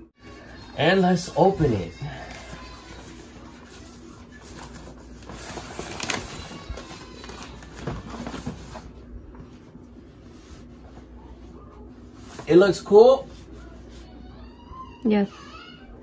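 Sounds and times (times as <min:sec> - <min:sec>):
vinyl mat crinkling and rustling: 0:01.5 - 0:09.8.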